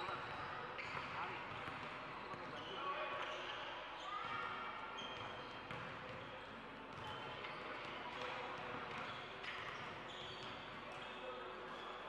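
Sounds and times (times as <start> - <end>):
sneakers squeaking on court: 0.2 - 4.1, 5.0 - 6.2, 8.9 - 11.8.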